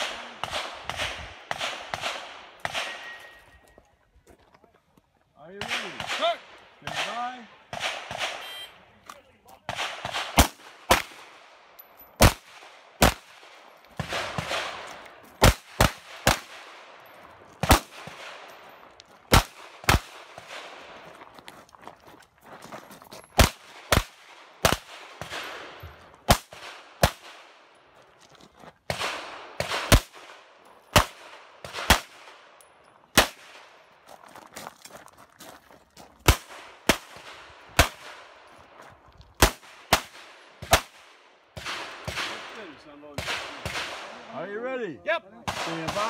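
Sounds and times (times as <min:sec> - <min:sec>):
rapid pistol shots: 0:00.0 - 0:03.2, 0:05.6 - 0:08.4, 0:09.7 - 0:11.6, 0:12.2 - 0:16.9, 0:17.6 - 0:18.5, 0:19.3 - 0:21.0, 0:23.4 - 0:27.6, 0:28.9 - 0:32.5, 0:45.5 - 0:46.0.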